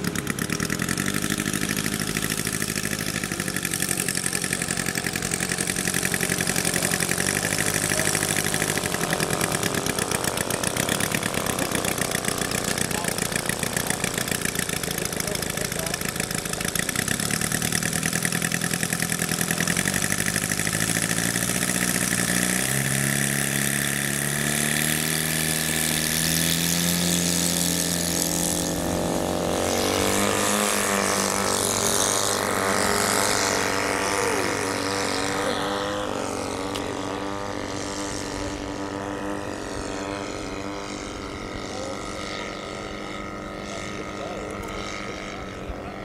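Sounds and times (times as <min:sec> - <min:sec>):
model plane engine and propeller: 0:00.0 - 0:46.0.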